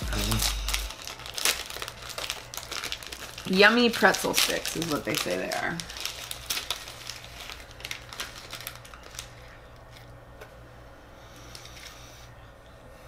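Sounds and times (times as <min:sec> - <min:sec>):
plastic wrapper crinkling: 0:00.0 - 0:10.1.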